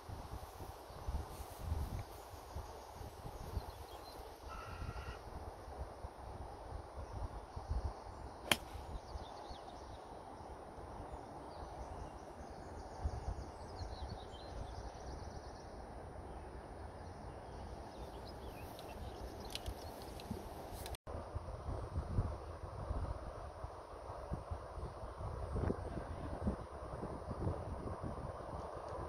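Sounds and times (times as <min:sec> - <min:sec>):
wind rumble on microphone: 0:00.0 - 0:10.0, 0:17.0 - 0:29.0
faint bird chirps: 0:02.4 - 0:05.2
golf club striking ball: 0:08.4 - 0:08.8.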